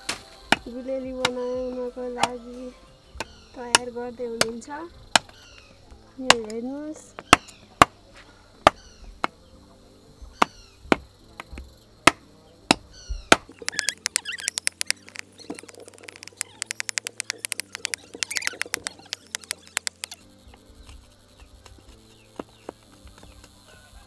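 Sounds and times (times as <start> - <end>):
knife chopping wood on block: 10.4 - 20.2
bird chirping: 12.9 - 23.5.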